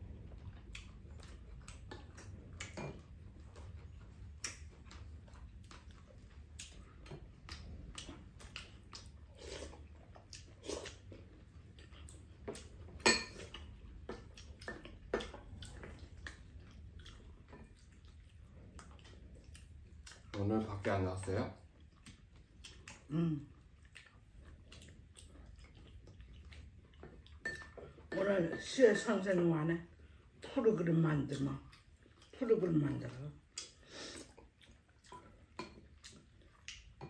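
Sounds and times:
people chewing: 0.0 - 28.2, 31.3 - 37.0.

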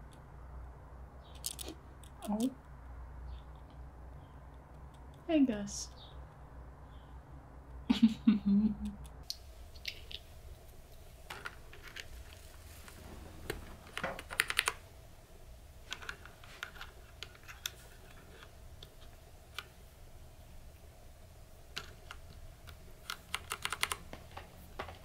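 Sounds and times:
plastic keycaps clicking: 21.8 - 24.1.

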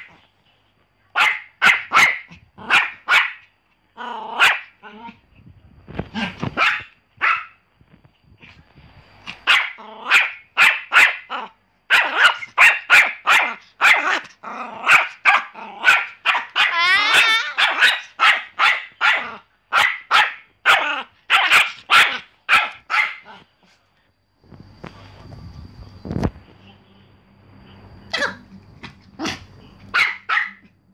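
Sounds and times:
dog barking: 1.1 - 3.5, 4.4 - 4.8, 6.5 - 7.6, 9.4 - 23.4, 29.2 - 30.8
dog yelping: 1.2 - 3.4, 4.2 - 5.2, 6.6 - 7.6, 9.4 - 23.4, 29.2 - 30.7.

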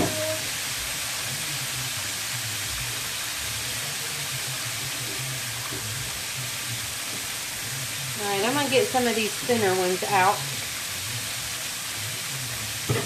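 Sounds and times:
chicken deep-frying in oil: 0.0 - 13.0.

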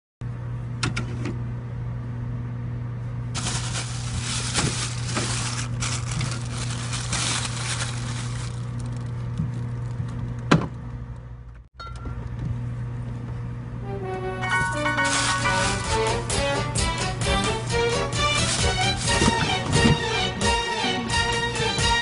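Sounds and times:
plastic bag crinkling: 3.4 - 10.1, 15.0 - 15.7.

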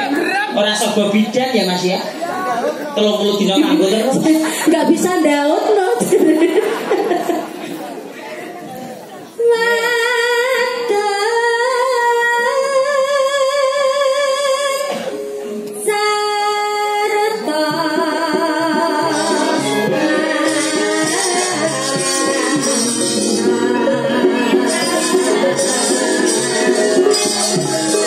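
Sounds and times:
woman singing through a pa: 4.1 - 6.8, 9.4 - 28.0
gamelan ensemble: 18.7 - 28.0.

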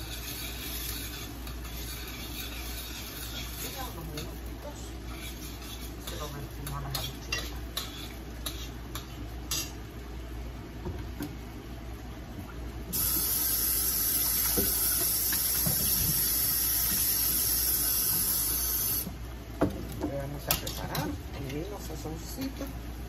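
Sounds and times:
water running from tap: 12.9 - 19.1.

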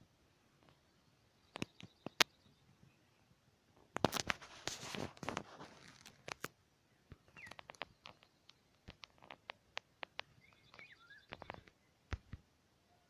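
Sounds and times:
rustle: 0.0 - 13.0
sharp clicks and crackles: 1.5 - 2.3, 3.9 - 12.4.

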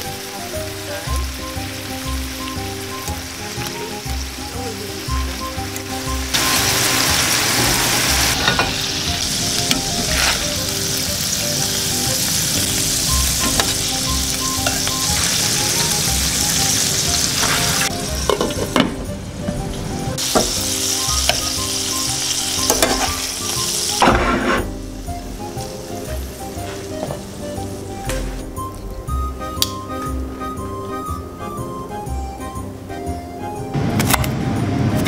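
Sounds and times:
meatballs sizzling in oil: 0.0 - 18.9, 20.0 - 28.4.

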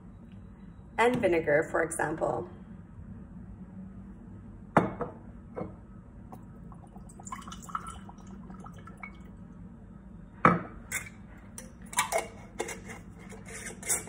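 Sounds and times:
liquid trickling and gurgling: 6.3 - 9.4.

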